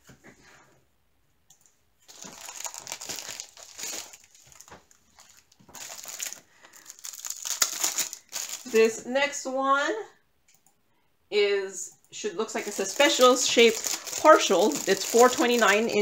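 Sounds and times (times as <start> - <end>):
plastic packaging crinkling: 2.0 - 9.0, 12.5 - 16.0.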